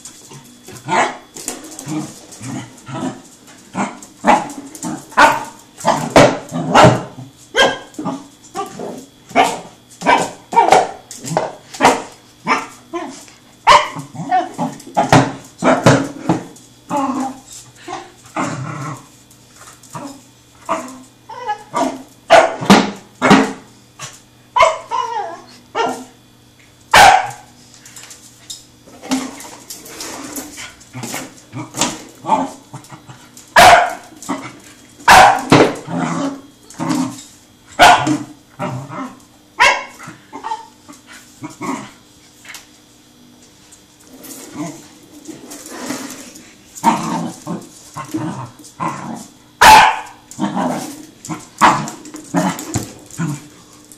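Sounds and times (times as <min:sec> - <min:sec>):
puppy barking and yipping: 0:26.9 - 0:27.4, 0:33.6 - 0:34.0, 0:35.1 - 0:35.5, 0:37.8 - 0:38.1, 0:39.6 - 0:40.6, 0:49.6 - 0:50.2.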